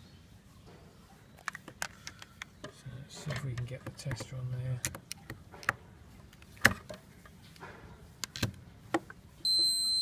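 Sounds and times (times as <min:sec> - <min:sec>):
high-pitched tester beep: 0:09.4 - 0:10.0.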